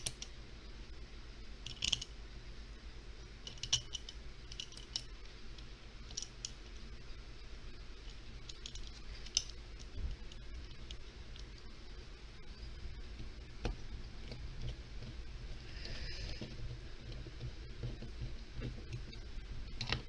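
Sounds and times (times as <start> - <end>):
small screws clicking on metal: 0.0 - 0.3, 1.6 - 2.2, 3.4 - 6.8, 8.0 - 11.7.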